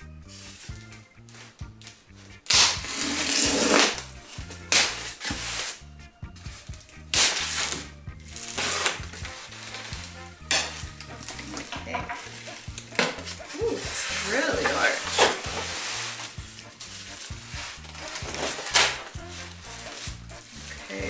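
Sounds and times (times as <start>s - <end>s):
background music with bass: 0.0s - 21.0s
foam scraping on foam: 2.8s - 4.0s, 13.7s - 21.0s.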